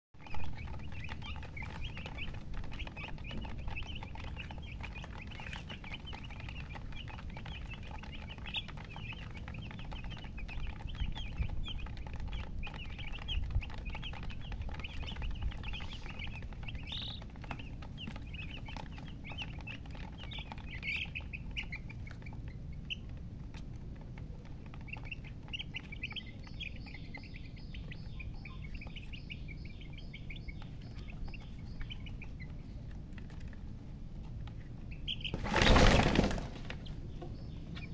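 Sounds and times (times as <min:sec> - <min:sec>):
low steady rumble: 0:00.2 - 0:35.7
chicks peeping: 0:00.2 - 0:37.9.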